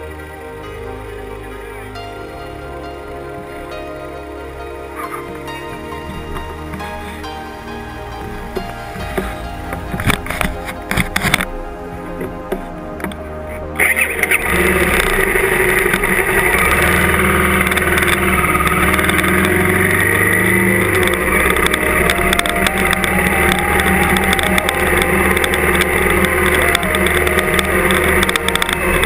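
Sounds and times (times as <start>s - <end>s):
motorcycle engine running: 13.8s - 29.0s.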